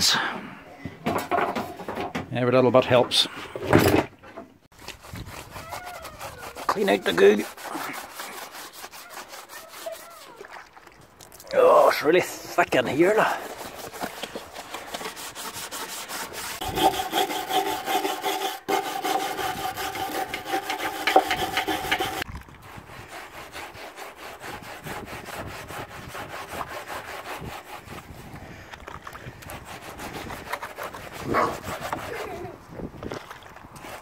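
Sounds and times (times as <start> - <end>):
sponge scrubbing: 4.7 - 10.8, 12.9 - 28.3, 29.5 - 32.6.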